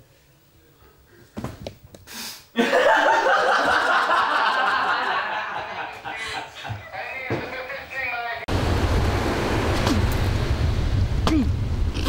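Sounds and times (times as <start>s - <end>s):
women laughing: 2.6s - 7.9s.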